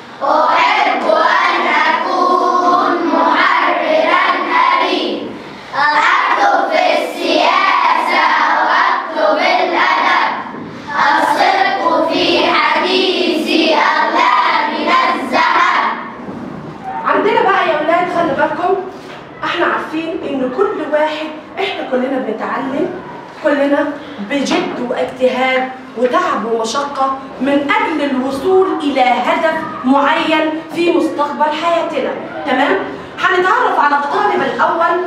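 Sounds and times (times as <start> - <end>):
children singing in unison: 0.2 - 16.1.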